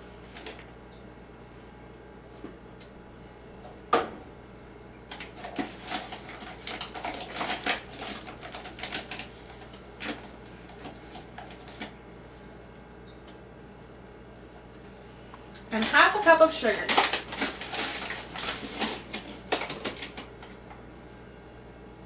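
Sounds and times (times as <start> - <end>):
rustling packages: 5.1 - 12.0, 15.7 - 20.8.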